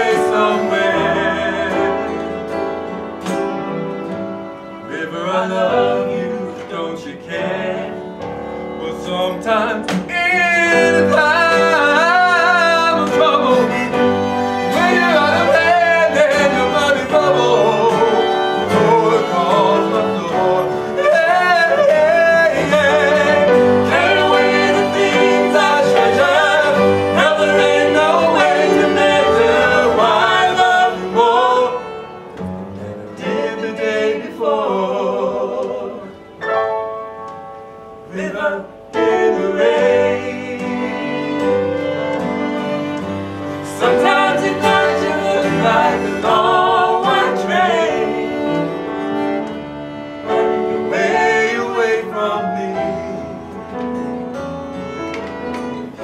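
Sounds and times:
men singing ballad duet: 0.0s - 2.5s, 8.8s - 32.0s, 43.5s - 48.8s, 50.8s - 53.4s
instrumental accompaniment: 0.0s - 56.0s.

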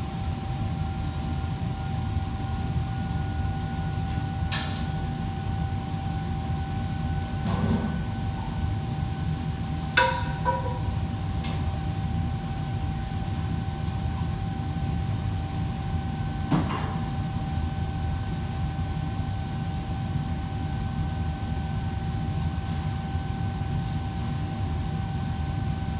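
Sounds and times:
metal cookware clanking: 10.0s - 10.8s.

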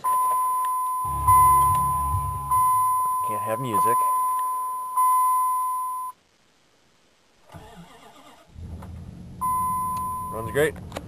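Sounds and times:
electronic beep: 0.0s - 6.2s, 9.4s - 10.6s.

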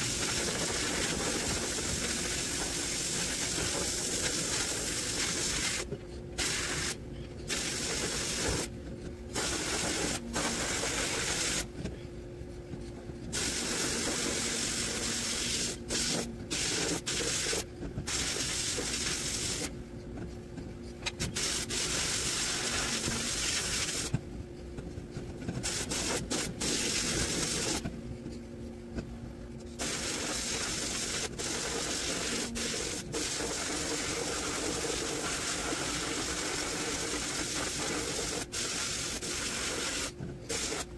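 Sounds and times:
low machine hum: 0.0s - 40.9s
sandblast nozzle hissing: 6.4s - 8.7s, 9.4s - 11.7s, 13.4s - 19.7s, 21.4s - 24.1s, 25.6s - 27.8s, 29.8s - 40.9s.

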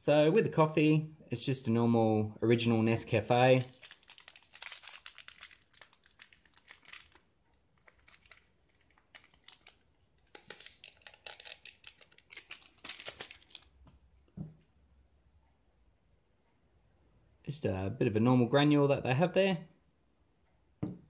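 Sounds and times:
coffee sachet crinkling: 3.3s - 13.8s.

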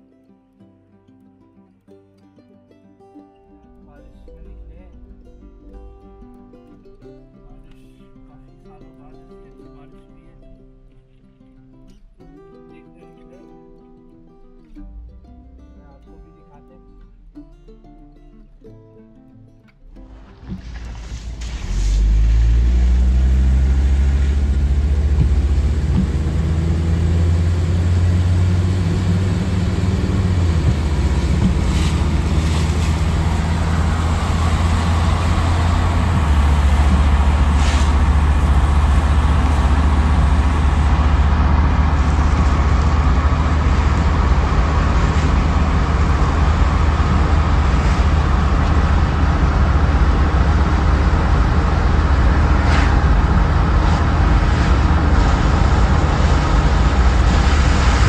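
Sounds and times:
tyre noise on wet road: 20.0s - 58.0s
low engine drone: 20.1s - 58.0s.

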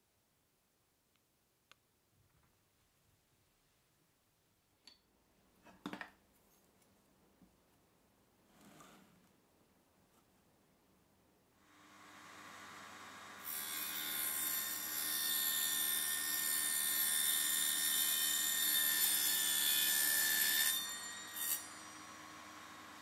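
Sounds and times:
saw blade cutting metal tube: 13.4s - 22.4s.

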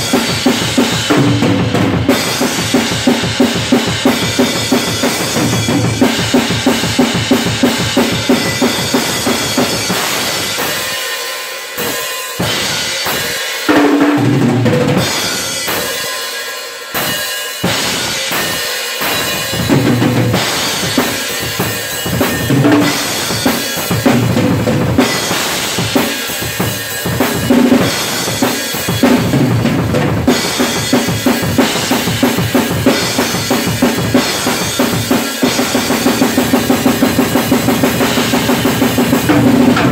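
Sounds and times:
crashing cymbals: 2.1s - 13.7s, 15.0s - 24.4s, 25.0s - 29.4s
snare drum strokes: 30.4s - 39.9s
bass drum strokes: 39.3s - 39.9s.

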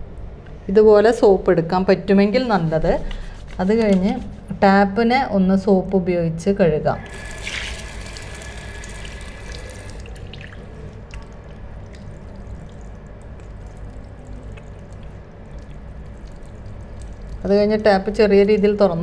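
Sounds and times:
tap water splashing into basin: 7.1s - 17.5s
hands rinsing under water: 7.1s - 18.8s.

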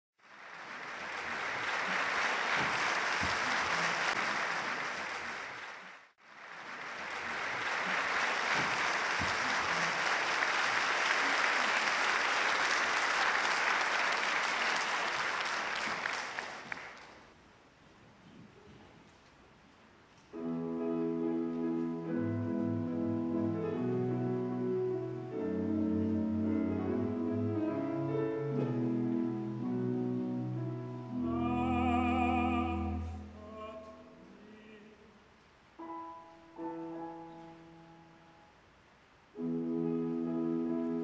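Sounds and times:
audience applauding: 0.2s - 17.3s.

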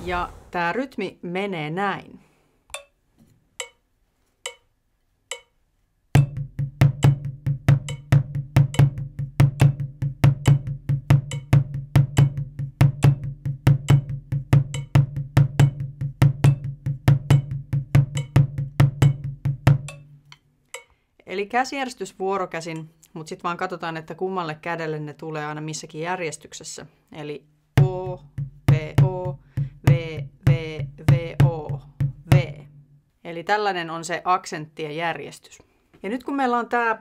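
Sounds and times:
drumsticks on practice pad: 2.7s - 3.0s, 3.6s - 5.6s, 19.0s - 21.0s.

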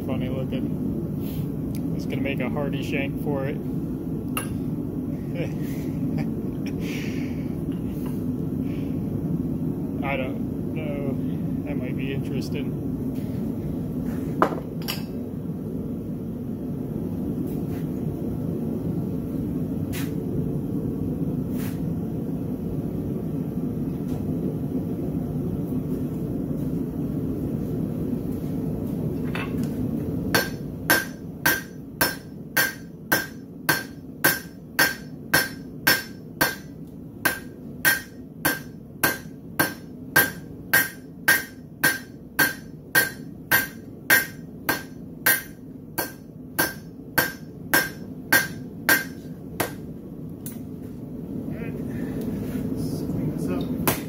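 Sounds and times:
hammer striking steel on anvil: 4.4s - 4.6s, 14.4s - 15.2s, 30.3s - 49.8s.

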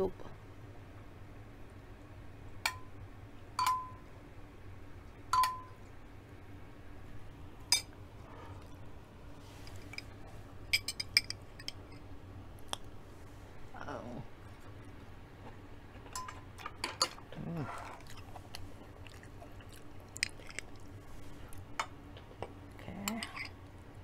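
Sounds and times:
spoon clinking on glass dishes: 3.6s - 4.0s, 5.4s - 5.8s, 10.7s - 12.0s, 16.1s - 17.2s.

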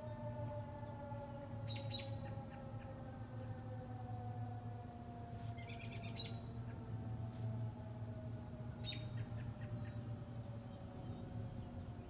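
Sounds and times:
birds chirping: 0.0s - 4.2s, 5.6s - 7.1s, 8.6s - 12.0s
distant warning siren winding down: 0.0s - 12.0s.

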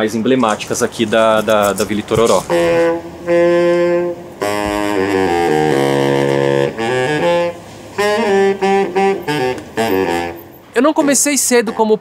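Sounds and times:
baritone saxophone playing: 1.4s - 10.7s.

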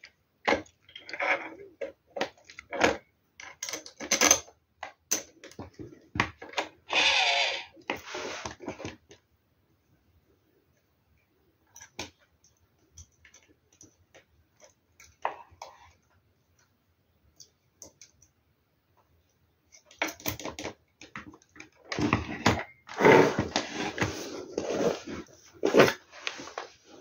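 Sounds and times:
small clicks and taps: 11.7s - 21.8s
rustling and handling noise: 18.9s - 27.0s.

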